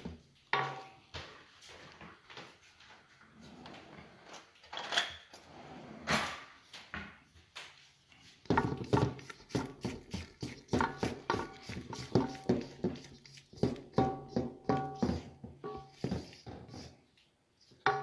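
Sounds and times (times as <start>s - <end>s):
spatula scraping metal bowl: 8.4s - 17.0s.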